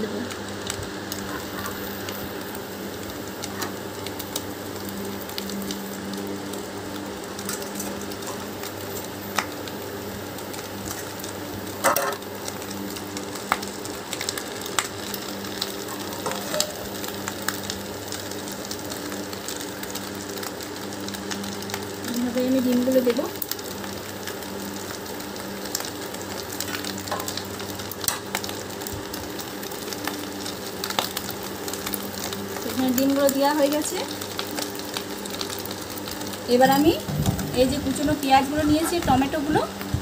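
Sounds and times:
oil sizzling in frying pan: 0.0 - 40.0
steady low hum: 36.5 - 39.9.

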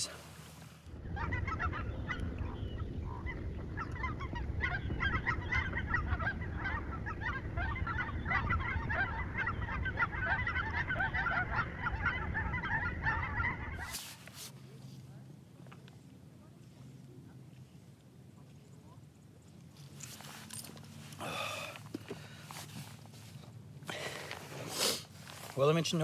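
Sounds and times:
geese honking: 1.2 - 14.0.

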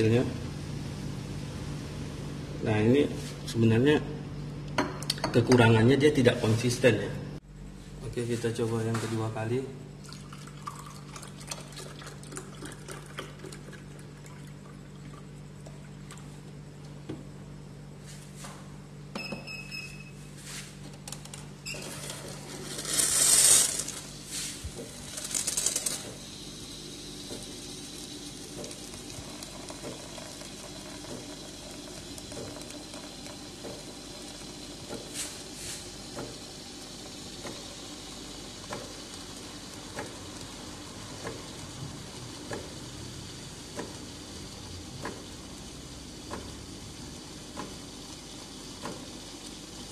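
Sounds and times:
milk pouring into a glass: 10.0 - 16.4, 27.6 - 34.6
steam milk frother hissing: 21.8 - 49.9.

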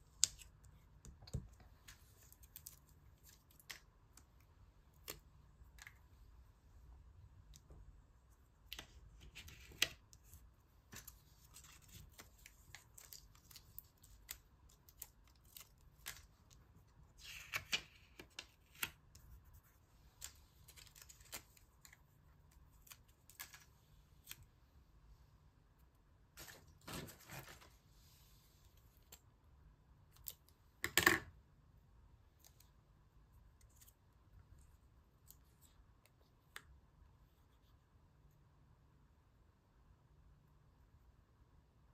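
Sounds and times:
paper rustling: 26.4 - 27.9.

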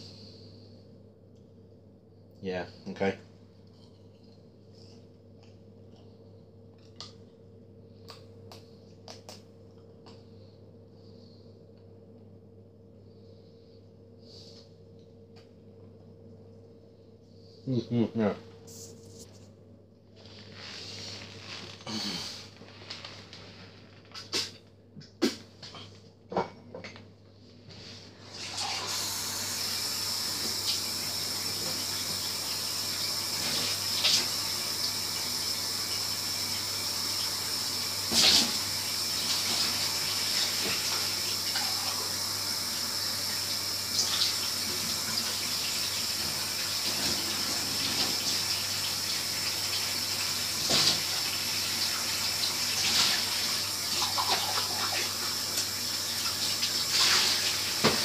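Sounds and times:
tap running into sink: 57.8 - 58.0.

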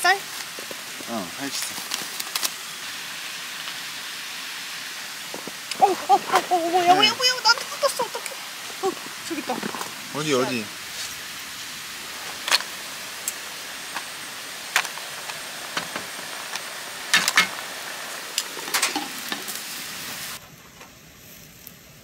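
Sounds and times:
beef sizzling on grill: 0.0 - 22.0
sharp clicks and pops: 0.3 - 2.8, 5.2 - 6.5, 12.3 - 17.7.

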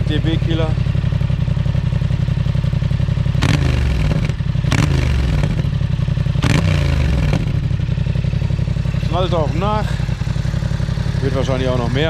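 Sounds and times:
motorcycle engine idling and revving: 0.0 - 12.0
exhaust popping: 3.3 - 12.0.

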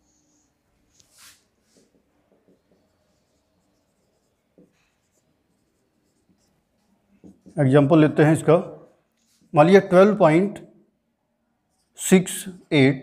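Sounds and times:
marker writing on whiteboard: 0.0 - 9.6.

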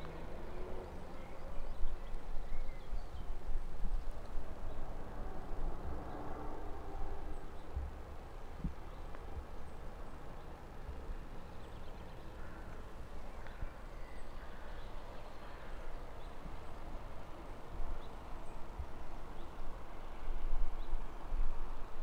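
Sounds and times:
wind rumble on microphone: 0.0 - 9.8, 16.1 - 22.0.

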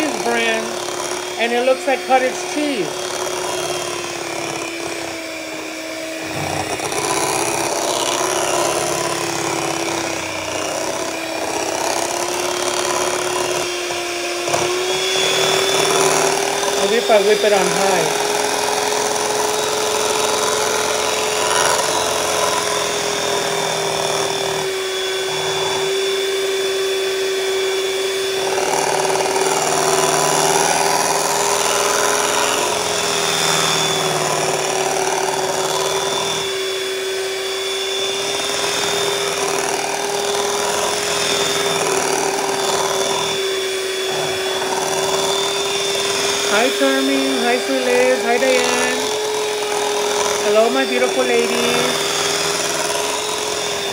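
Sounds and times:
electric hand mixer whirring: 0.0 - 53.9.

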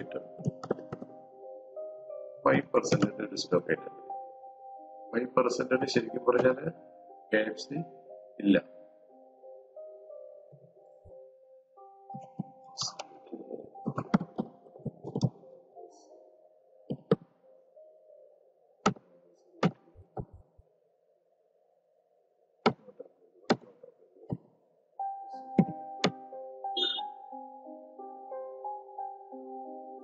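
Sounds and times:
computer keyboard typing: 13.8 - 15.4.

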